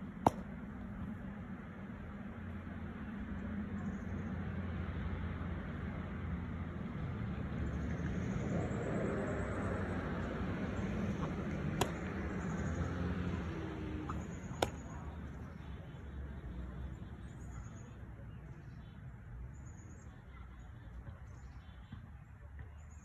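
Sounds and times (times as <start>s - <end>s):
low outdoor rumble: 0.0s - 18.8s
baseball popping into catcher's mitt: 0.1s - 1.3s, 10.5s - 15.6s.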